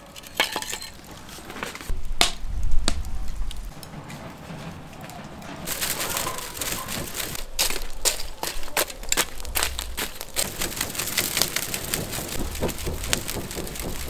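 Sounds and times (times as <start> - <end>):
charcoal crackling and popping: 0.0 - 14.0
low rush of moving air: 1.9 - 4.1.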